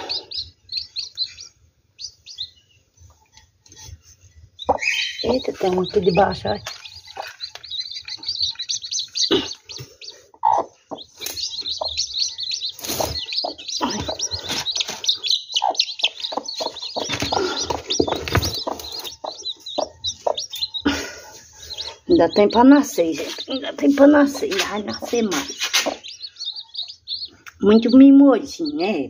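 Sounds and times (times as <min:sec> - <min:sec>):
chicks peeping: 0:00.0 - 0:29.0
thumps and rustling in nest: 0:16.6 - 0:19.4.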